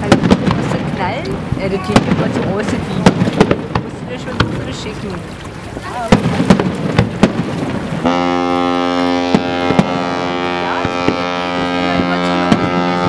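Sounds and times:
firework bangs: 0:00.0 - 0:05.0, 0:05.8 - 0:13.0
ship's horn blast: 0:07.9 - 0:13.0.

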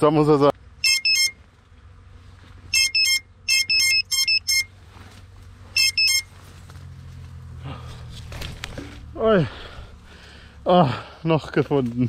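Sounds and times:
high-pitched electronic alarm chirps: 0:00.8 - 0:01.4, 0:02.7 - 0:04.7, 0:05.8 - 0:06.3.

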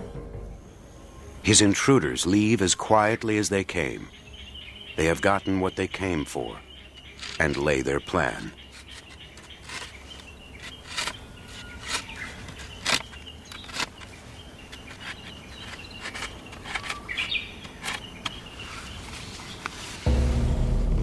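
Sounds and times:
birds chirping: 0:00.0 - 0:20.1
insects chirping: 0:00.0 - 0:20.1.

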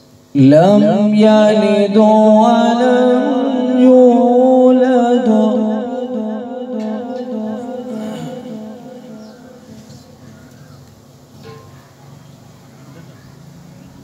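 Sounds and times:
man reciting melodically: 0:00.3 - 0:10.2.

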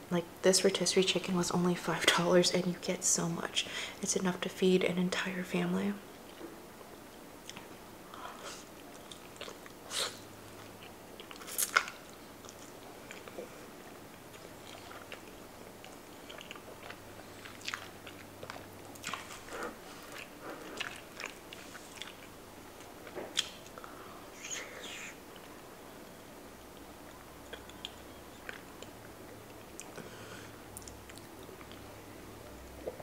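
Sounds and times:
chewing chicken: 0:08.8 - 0:09.8, 0:10.5 - 0:23.8, 0:26.7 - 0:30.0.

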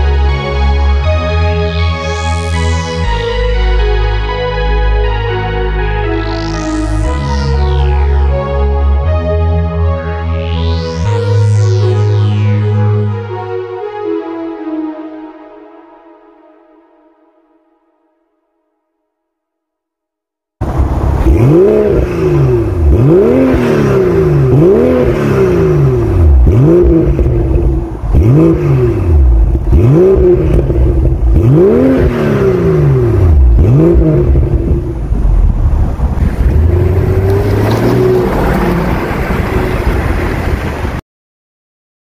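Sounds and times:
car engine revving and idling: 0:01.0 - 0:08.6, 0:20.6 - 0:40.7.

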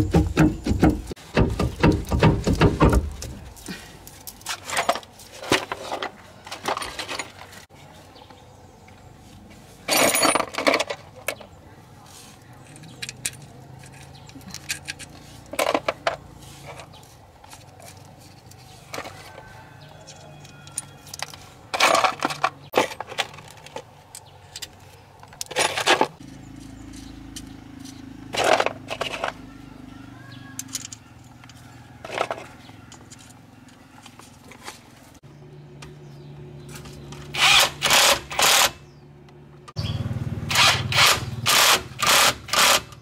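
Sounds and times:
hand tools knocking on metal: 0:00.0 - 0:03.4.

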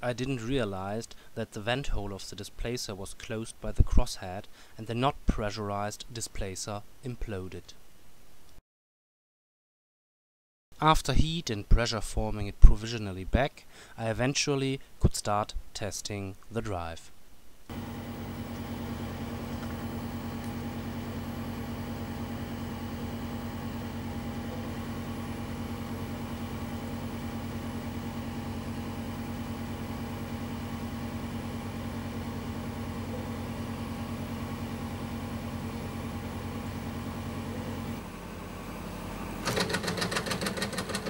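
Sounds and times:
fuel burner humming: 0:17.7 - 0:41.0.

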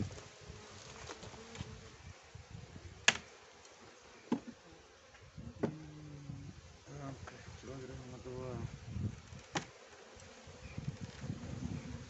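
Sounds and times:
honey bees buzzing: 0:00.0 - 0:12.0.

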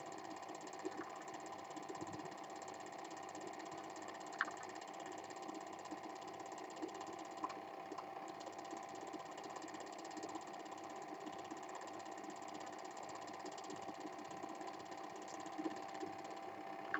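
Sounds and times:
film projector clatter: 0:00.0 - 0:16.9
faint clicks: 0:04.2 - 0:05.1.

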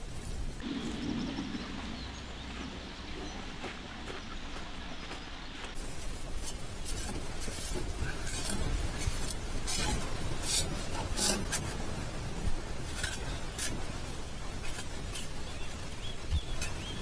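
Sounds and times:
steady low rumble: 0:00.0 - 0:17.0
scraping and rustling strokes: 0:05.7 - 0:17.0.

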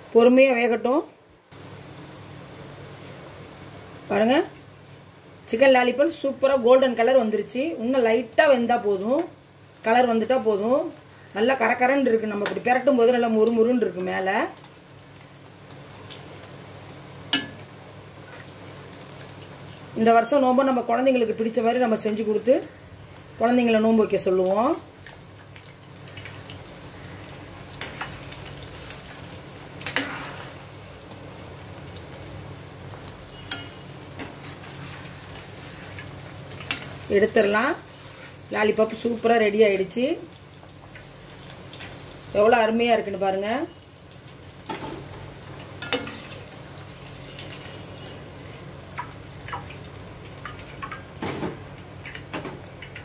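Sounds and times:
oil sizzling while deep-frying: 0:00.0 - 0:53.0.

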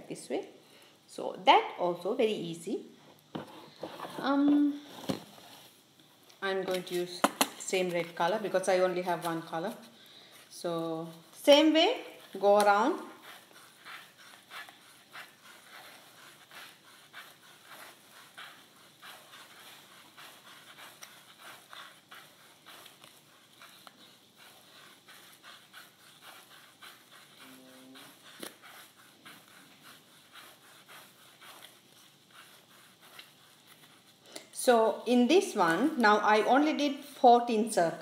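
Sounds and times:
yarn rustling on cardboard: 0:06.4 - 0:36.7.

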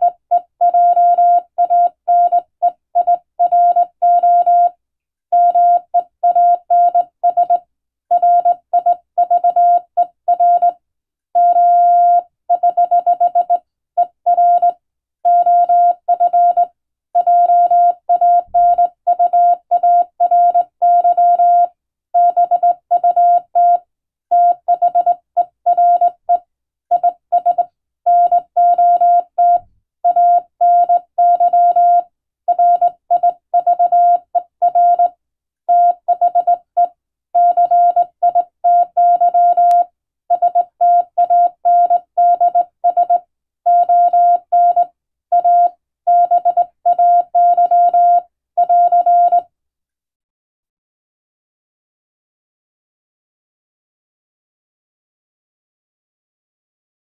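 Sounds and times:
morse code beeps: 0:05.4 - 0:10.7, 0:11.4 - 0:14.7, 0:15.3 - 0:23.8, 0:24.4 - 0:35.1, 0:35.7 - 0:49.4.

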